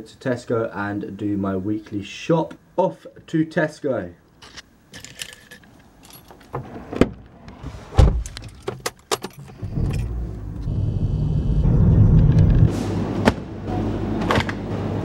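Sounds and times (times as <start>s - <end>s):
car keys jangling: 4.4s - 6.6s, 8.2s - 10.2s
car engine rumbling: 5.7s - 12.7s.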